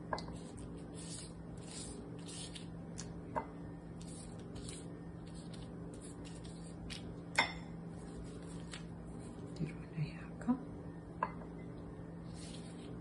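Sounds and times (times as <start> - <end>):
low steady hum: 0.0 - 13.0
pastry and plastic rustling: 4.0 - 7.3, 7.9 - 9.9, 12.2 - 13.0.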